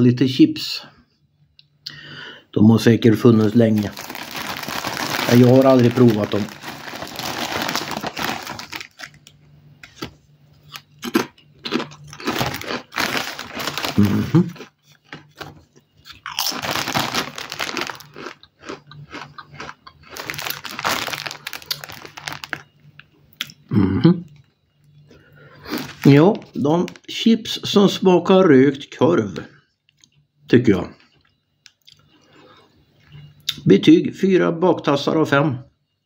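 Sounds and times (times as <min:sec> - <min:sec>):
potato chips crunching in mouth: 0:03.4 - 0:22.7, 0:25.7 - 0:27.0.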